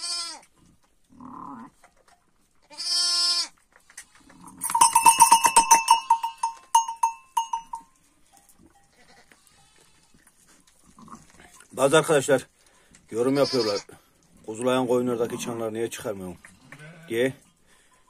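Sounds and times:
sheep bleating: 0:00.0 - 0:00.4, 0:02.7 - 0:03.5, 0:08.9 - 0:10.2, 0:13.2 - 0:13.9, 0:16.6 - 0:17.1
sheep bell clanking: 0:04.4 - 0:09.8.

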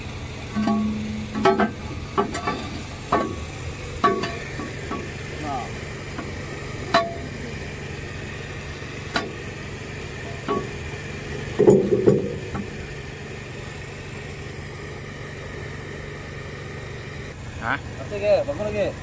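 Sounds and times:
engine idling: 0:00.0 - 0:19.0
metal knocks and clanks: 0:00.6 - 0:03.4, 0:04.0 - 0:05.1, 0:11.6 - 0:12.7.

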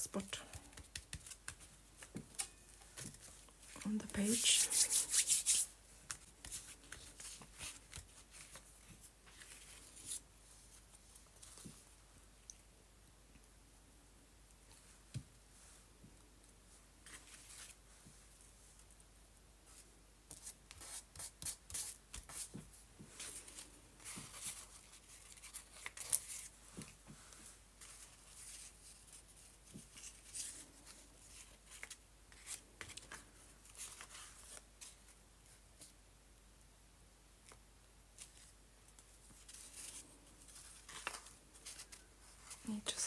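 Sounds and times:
paper rustling and clicking: 0:40.6 - 0:42.0.

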